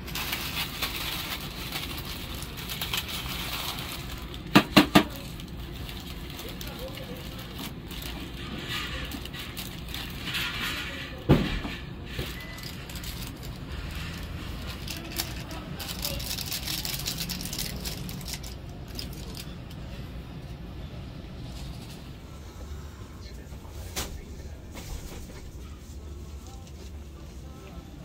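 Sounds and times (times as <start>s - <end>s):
plastic bag rustling and crinkling: 0.0s - 20.0s
steady low hum: 0.0s - 28.0s.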